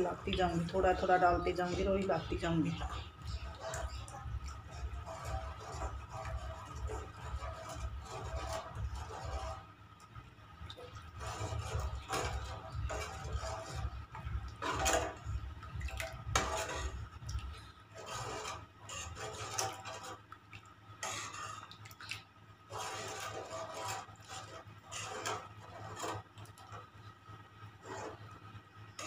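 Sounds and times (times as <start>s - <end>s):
low rumble: 10.6s - 18.4s.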